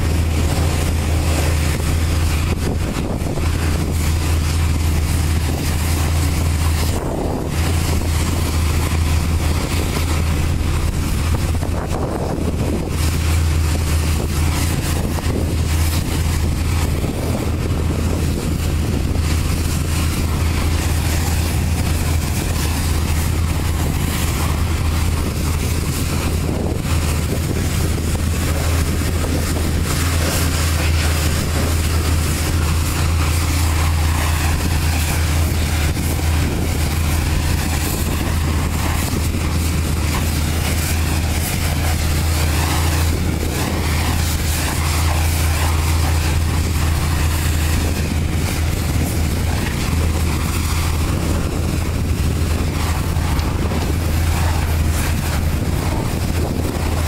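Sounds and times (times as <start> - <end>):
low engine drone: 0.0 - 57.0
pressure washer spraying: 0.0 - 57.0.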